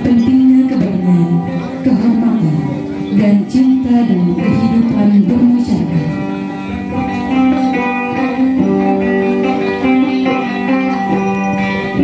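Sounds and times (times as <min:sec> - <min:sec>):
plucked string melody: 0:00.0 - 0:12.0.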